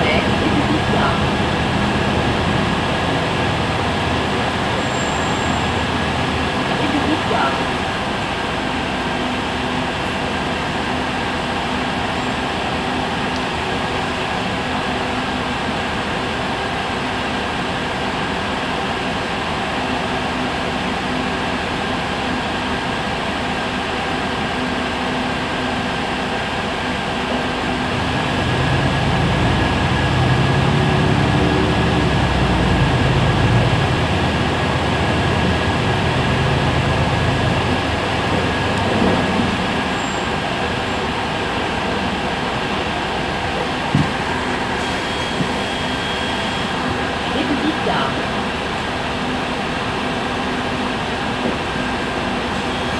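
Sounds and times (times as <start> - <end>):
bus engine idling: 0.0 - 52.9.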